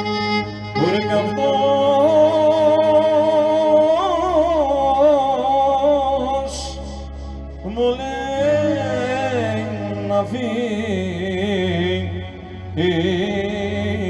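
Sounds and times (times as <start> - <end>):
clarinet melody: 0.0 - 4.5
electric keyboard accompaniment: 0.0 - 14.0
man singing: 0.7 - 14.0.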